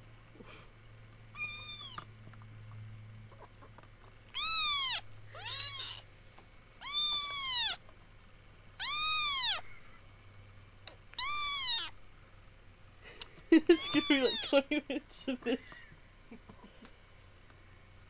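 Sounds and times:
kitten meowing: 1.3 - 2.1, 4.3 - 6.1, 6.8 - 7.8, 8.8 - 9.7, 11.1 - 12.0, 13.6 - 14.5.

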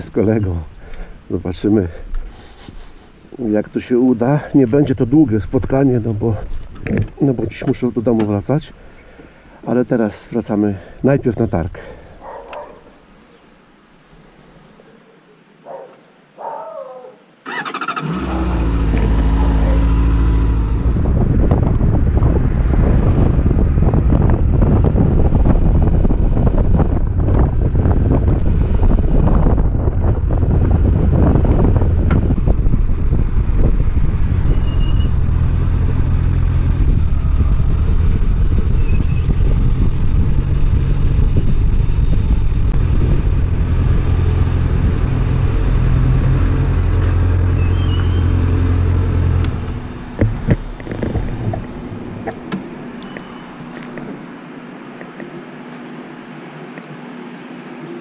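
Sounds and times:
motorcycle engine running: 18.0 - 54.1
wind buffeting microphone: 18.2 - 54.3.

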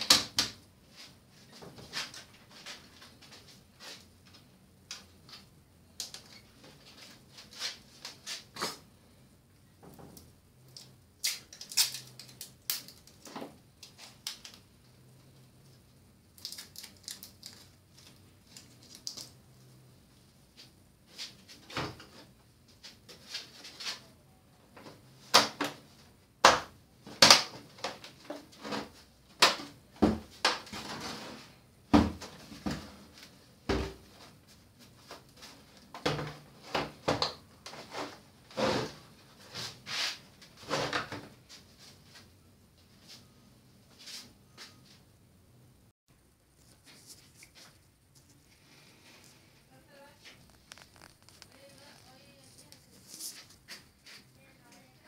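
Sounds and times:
hands handling tv parts clicking: 10.1 - 14.6.

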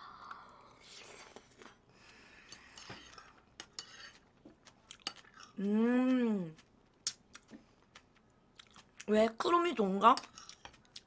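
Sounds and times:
person humming mmm: 5.6 - 6.6.

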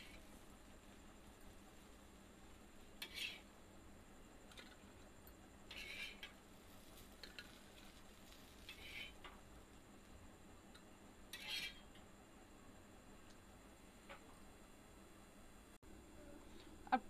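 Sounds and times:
steel spatula scraping griddle: 3.0 - 3.6, 5.7 - 9.4, 11.3 - 12.0.

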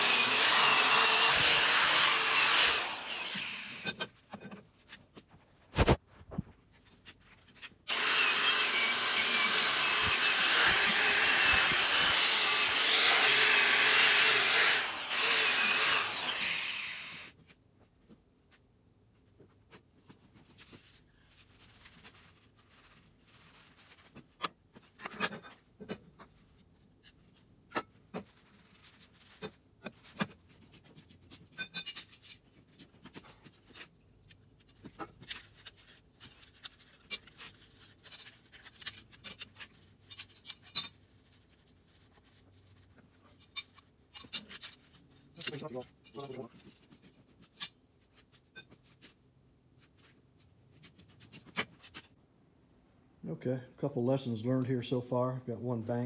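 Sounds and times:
metal parts clinking and scraping: 31.5 - 32.9, 34.6 - 41.1, 43.3 - 47.8.

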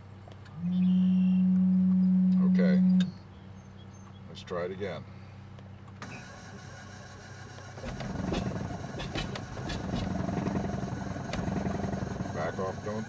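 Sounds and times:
propeller engine firing raggedly: 6.0 - 13.0
aircraft engine starter engaging: 7.4 - 12.0.

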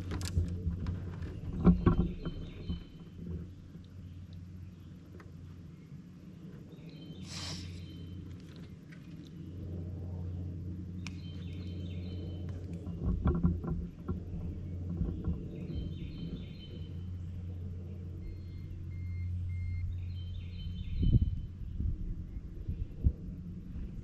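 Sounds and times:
electric trolling motor humming: 9.4 - 20.6
faint high chirping: 18.2 - 21.4.

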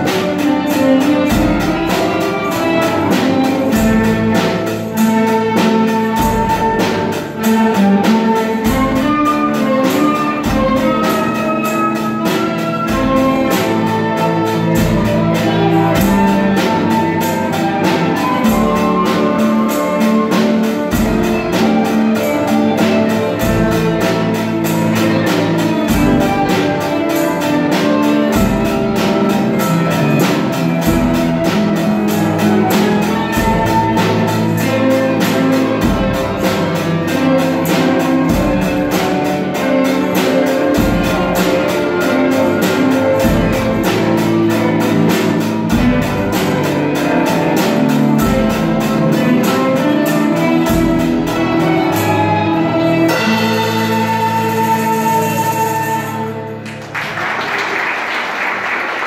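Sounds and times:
steady drum beat: 0.0 - 57.4
violins bowing: 0.0 - 59.0.

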